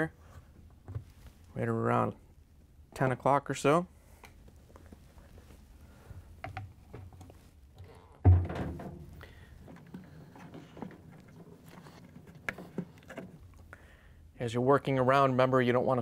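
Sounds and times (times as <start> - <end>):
loud thump: 8.2 - 9.2.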